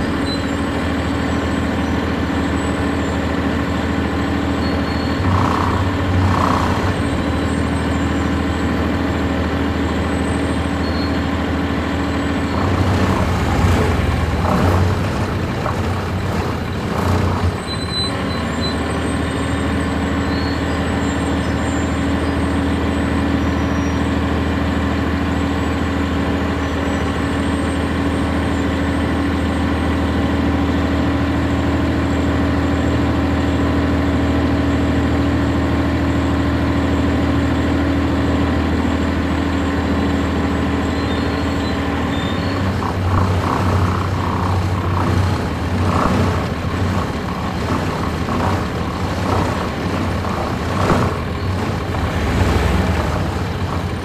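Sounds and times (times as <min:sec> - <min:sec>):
diesel bus engine idling: 0:00.0 - 0:54.0
loud rough noise: 0:03.2 - 0:10.5, 0:11.7 - 0:21.0, 0:40.4 - 0:54.0.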